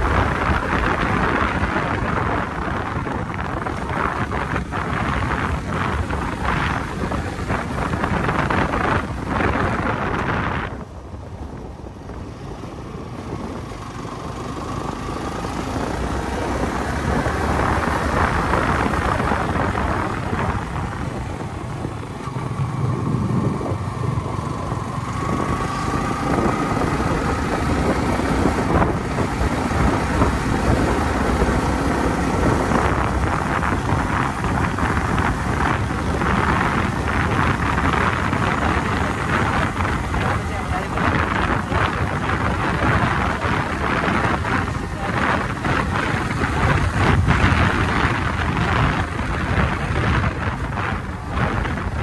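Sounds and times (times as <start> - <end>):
motorcycle engine running: 0.0 - 52.0
wind rushing over microphone: 0.0 - 52.0.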